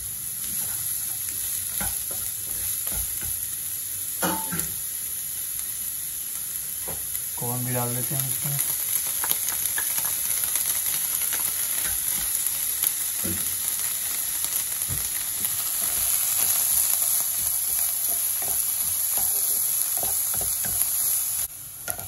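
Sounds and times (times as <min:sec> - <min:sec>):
vegetables sizzling in oil: 0:00.0 - 0:22.0
spatula stirring and scraping: 0:00.4 - 0:03.4, 0:15.4 - 0:21.0.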